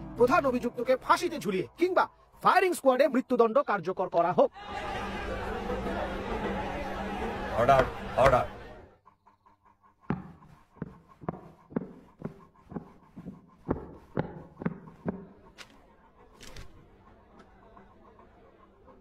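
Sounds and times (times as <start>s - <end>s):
footsteps on hard floor: 10.1s - 15.8s
paper rustling: 16.4s - 16.8s.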